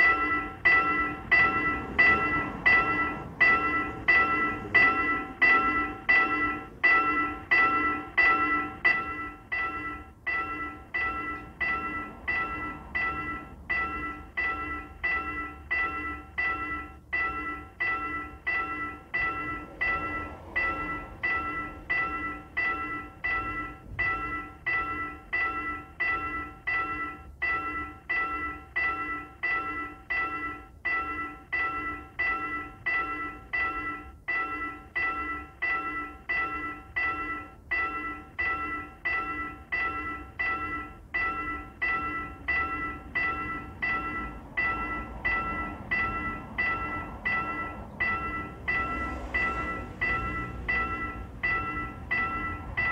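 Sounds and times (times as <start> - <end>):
railroad crossing bell ringing: 0.0 - 52.9.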